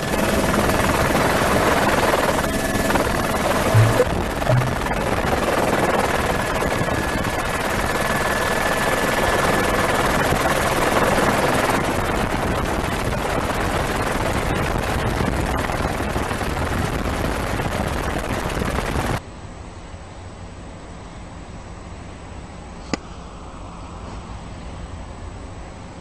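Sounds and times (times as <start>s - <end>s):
helicopter engine and rotor: 0.0s - 19.2s
faint high whine: 3.6s - 5.2s.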